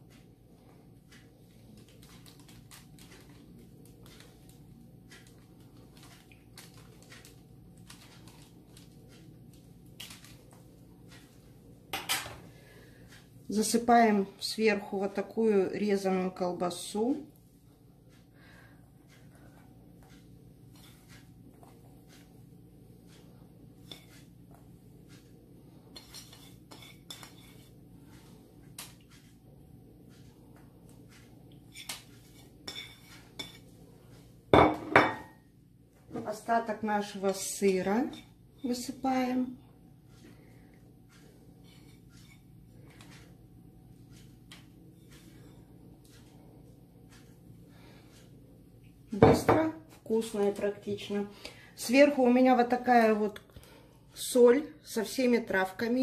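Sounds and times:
low steady hum: 0:00.0 - 0:56.0
spoon scraping flatbread: 0:25.9 - 0:27.8.

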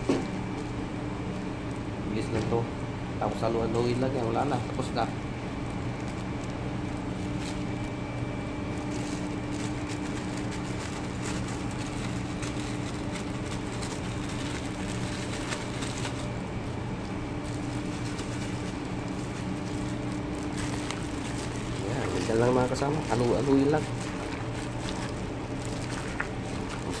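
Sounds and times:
motor humming: 0:10.8 - 0:27.0.

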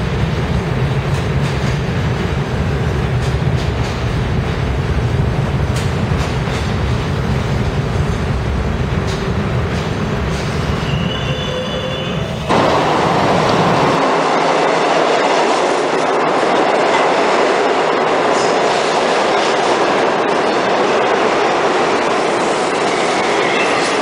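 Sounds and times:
train wheels rumbling: 0:00.0 - 0:24.0
faint wheel squeal: 0:10.7 - 0:12.4.

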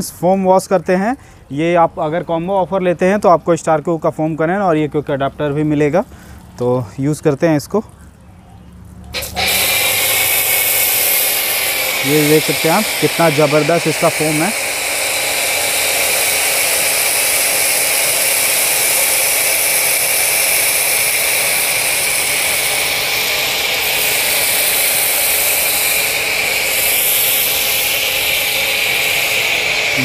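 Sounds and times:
pressure washer spray hiss: 0:09.1 - 0:30.0.

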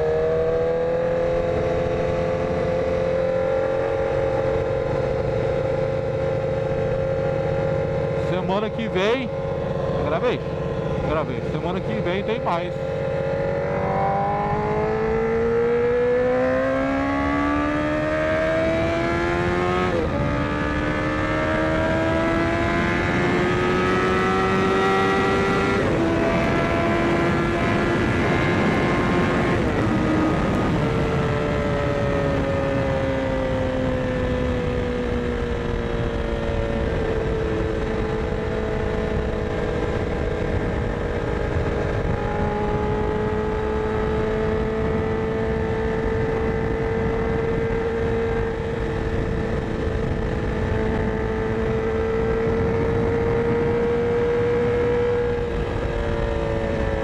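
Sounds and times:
motorcycle engine revving: 0:00.0 - 0:57.0
wind rush: 0:07.9 - 0:15.4, 0:36.8 - 0:57.0.

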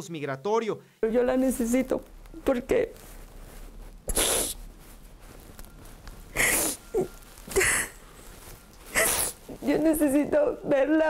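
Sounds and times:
faint whimpers: 0:06.3 - 0:08.1
woman sobbing: 0:06.4 - 0:08.1.

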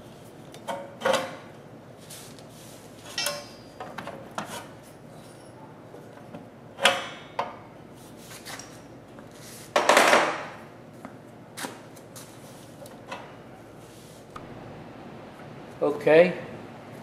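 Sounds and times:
metal clanks: 0:03.1 - 0:04.1.

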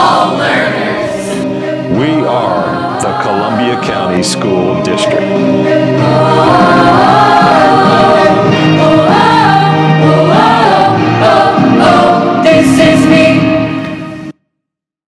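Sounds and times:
choir singing long notes: 0:00.0 - 0:14.3.

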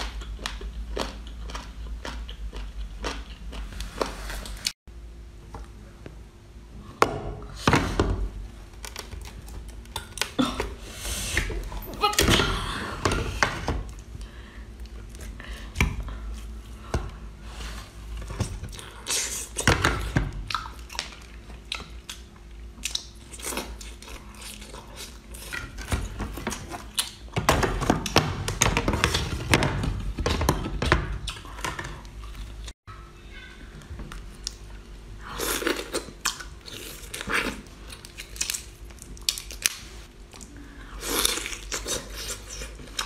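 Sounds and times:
person chewing raw oyster: 0:00.0 - 0:04.7, 0:20.4 - 0:25.9, 0:35.3 - 0:43.0.

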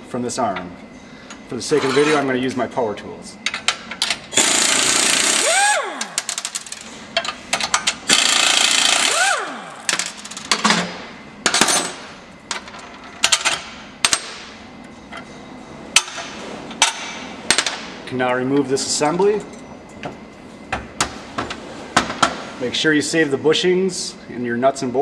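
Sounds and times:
tool spinning down whine: 0:04.4 - 0:06.4, 0:08.1 - 0:09.9
impact wrench hammering: 0:04.4 - 0:06.7, 0:07.7 - 0:10.9.

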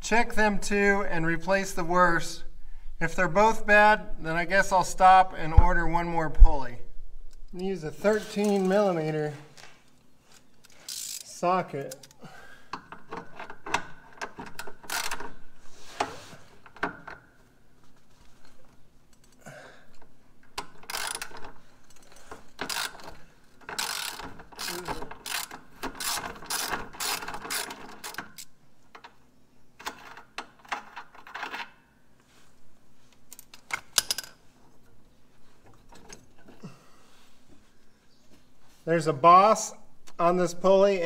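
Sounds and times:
socket ratchet clicking: 0:12.8 - 0:15.4, 0:22.6 - 0:29.1.

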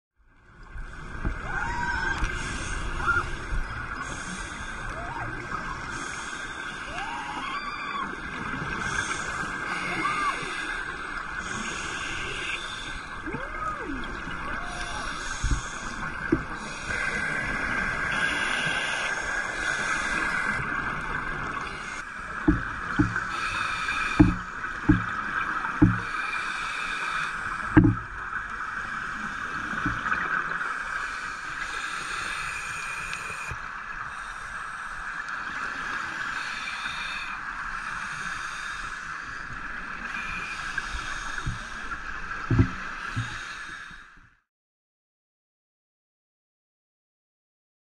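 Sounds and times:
diver breathing through regulator: 0:02.2 - 0:05.0, 0:05.8 - 0:06.9, 0:08.7 - 0:13.3, 0:15.0 - 0:20.7, 0:21.5 - 0:28.1, 0:30.7 - 0:44.2
short dull knocks: 0:22.4 - 0:23.2, 0:24.2 - 0:25.1, 0:25.8 - 0:26.0, 0:27.8 - 0:28.0, 0:42.5 - 0:43.4.

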